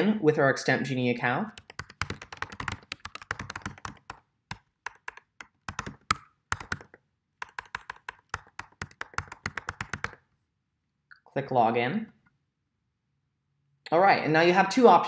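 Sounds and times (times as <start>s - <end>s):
typing on a computer keyboard: 1.6s - 10.2s.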